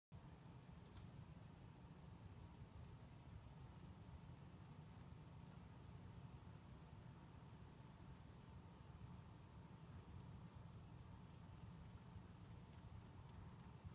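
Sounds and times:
crickets trilling: 0.2s - 13.9s.

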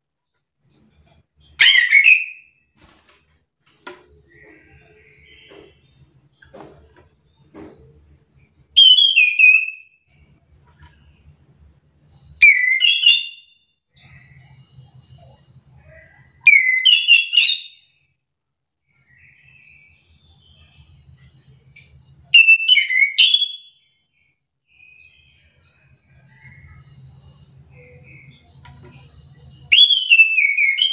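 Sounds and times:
bird whistling song: 1.6s - 2.6s, 8.3s - 10.3s, 12.0s - 18.0s, 19.0s - 24.0s, 24.7s - 30.9s
faint soft bird chirps: 4.1s - 18.1s, 18.8s - 30.9s.

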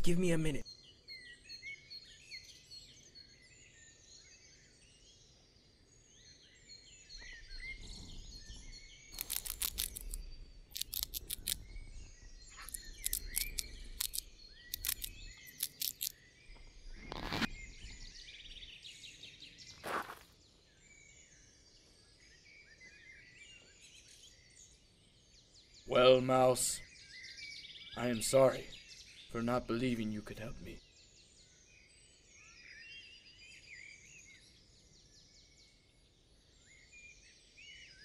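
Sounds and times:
forest birdsong: 0.0s - 38.0s
rapid scratchy gnawing clicks: 9.2s - 11.6s, 12.5s - 16.1s.

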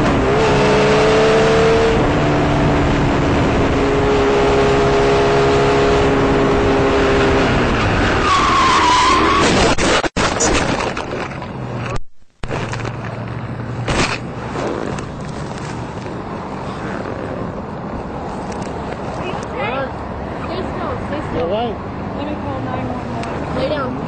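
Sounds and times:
wind rush on microphone: 1.8s - 8.5s
tyre squealing: 8.2s - 10.6s.

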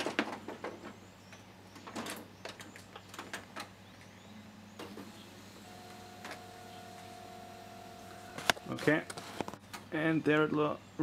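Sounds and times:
faint printer whine: 4.0s - 9.9s.

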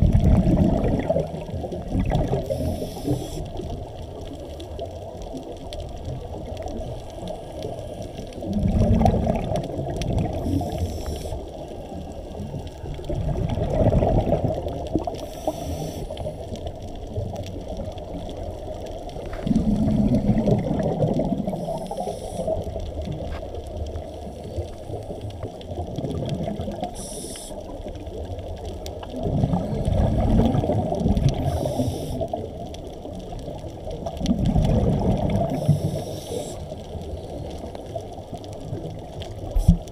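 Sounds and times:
exhaled bubbles rumbling: 0.0s - 39.9s
underwater wash: 0.0s - 39.9s
regulator inhalation hiss: 2.4s - 3.6s, 10.4s - 11.5s, 15.2s - 16.4s, 21.5s - 22.6s, 26.9s - 27.6s, 31.4s - 32.4s, 35.6s - 36.8s.

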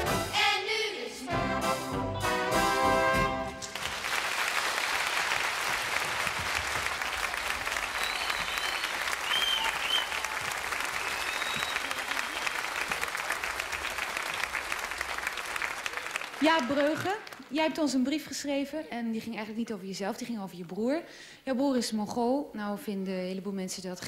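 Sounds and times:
audience clapping: 3.5s - 17.7s.

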